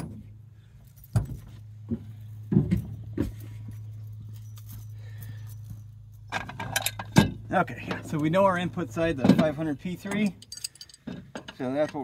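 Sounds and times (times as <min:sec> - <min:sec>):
steady low hum: 0:00.0 - 0:11.6
metal tools knocking and rattling: 0:05.8 - 0:12.0.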